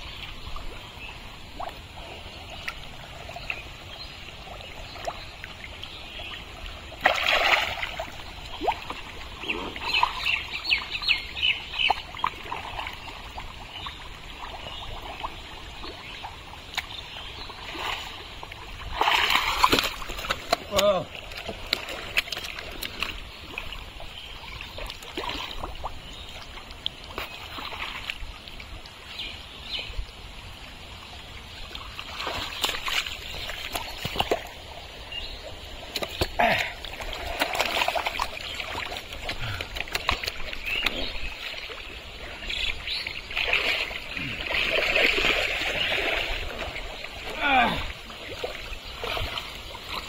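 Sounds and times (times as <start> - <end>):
splashing in mud and water: 6.1 - 24.0, 24.6 - 28.3, 31.6 - 50.0.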